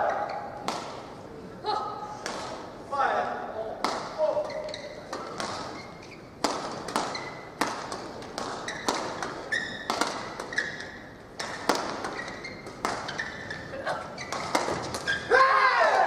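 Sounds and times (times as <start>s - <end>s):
shoes squeaking on court: 0.0s - 0.6s, 4.3s - 15.3s
rackets striking shuttlecocks: 0.0s - 1.2s, 2.2s - 2.7s, 3.8s - 15.3s.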